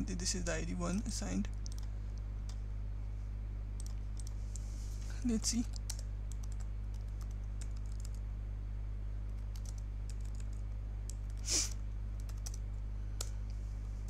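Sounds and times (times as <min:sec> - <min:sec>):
low electrical hum: 0:00.0 - 0:14.0
keyboard keystrokes: 0:12.2 - 0:12.6.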